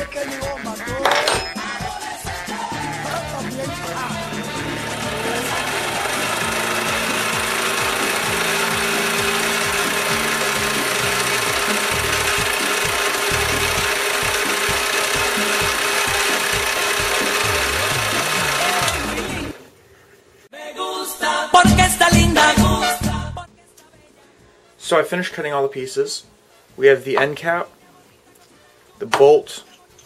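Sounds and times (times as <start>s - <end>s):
metal lathe cutting hiss: 3.0s - 19.6s.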